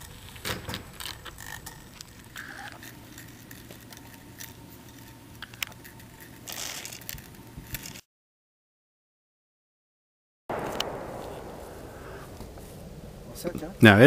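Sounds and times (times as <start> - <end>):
sharp click: 10.5 - 12.8.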